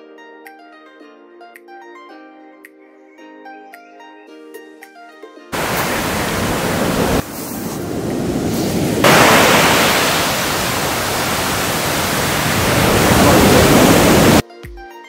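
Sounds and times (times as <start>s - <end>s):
surf washing up on beach: 5.6s - 14.4s.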